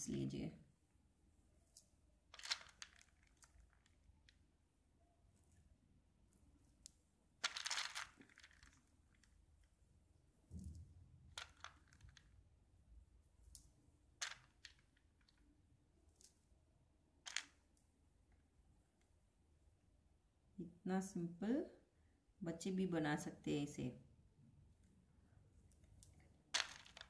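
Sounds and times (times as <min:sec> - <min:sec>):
faint clicks of beads: 0:01.6 - 0:04.5, 0:06.3 - 0:09.8, 0:10.5 - 0:12.5, 0:13.4 - 0:16.6, 0:17.2 - 0:19.2, 0:25.6 - 0:27.0.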